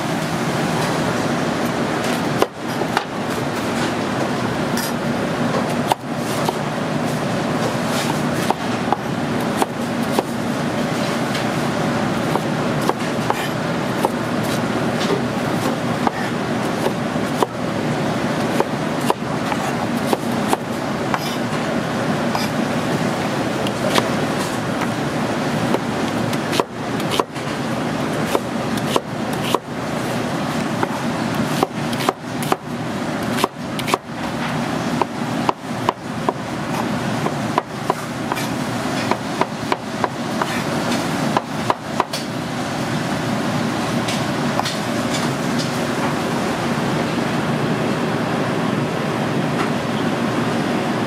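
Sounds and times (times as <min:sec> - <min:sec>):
steady background noise: 0:00.0 - 0:51.0
knife chopping on cutting board: 0:12.3 - 0:17.5, 0:18.5 - 0:21.5, 0:25.7 - 0:27.4, 0:28.2 - 0:29.7, 0:30.8 - 0:32.6, 0:33.3 - 0:34.0, 0:35.0 - 0:42.3.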